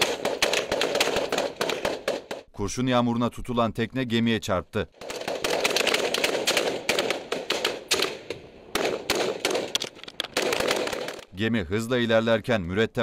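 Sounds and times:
rapid rifle shots: 0.0 - 2.5, 5.0 - 11.3.

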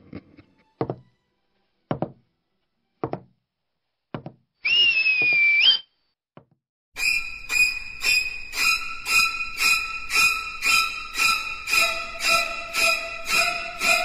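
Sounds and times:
footstep knocks: 1.9 - 2.2, 3.0 - 3.3, 4.2 - 4.4
held whistle note: 4.6 - 6.0, 7.0 - 14.0.

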